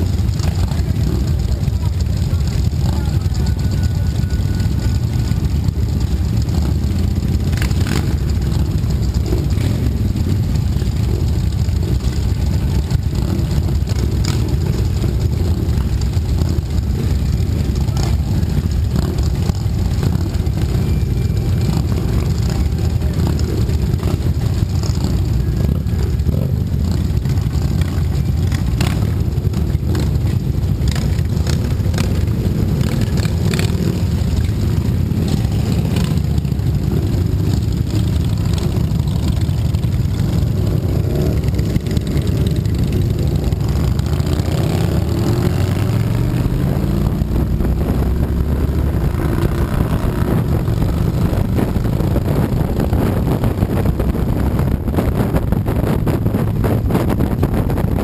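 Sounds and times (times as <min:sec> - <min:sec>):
motorcycles idling: 0:00.0 - 0:58.0.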